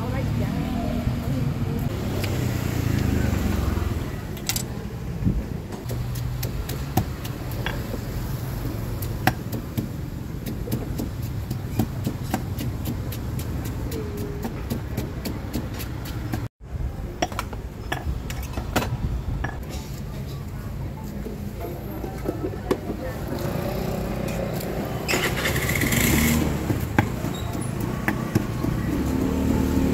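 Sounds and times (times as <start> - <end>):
mortar and pestle pounding: 5.8 - 16.5, 26.1 - 29.9.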